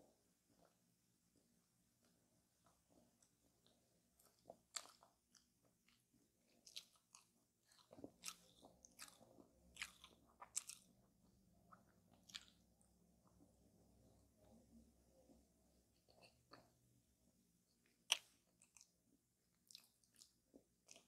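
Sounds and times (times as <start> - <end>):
crunchy chewing: 2.6 - 11.1, 11.7 - 12.6, 17.8 - 19.0, 19.6 - 21.0.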